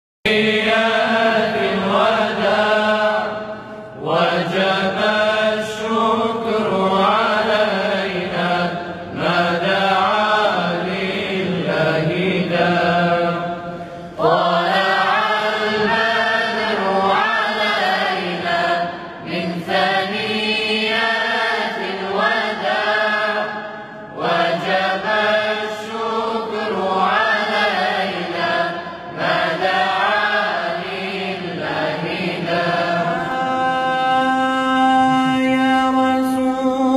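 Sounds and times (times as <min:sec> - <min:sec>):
men chanting a devotional song: 0:00.3 - 0:36.9.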